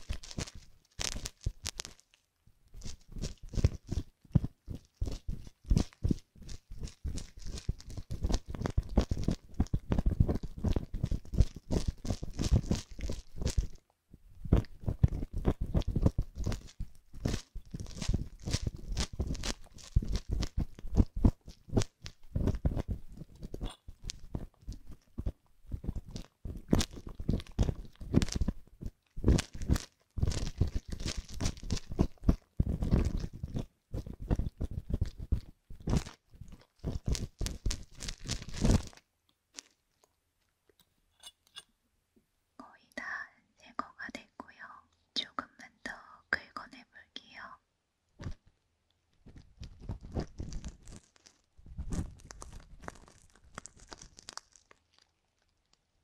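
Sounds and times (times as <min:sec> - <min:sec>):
tweezers scratching in ear model: 0:41.2 - 0:41.7.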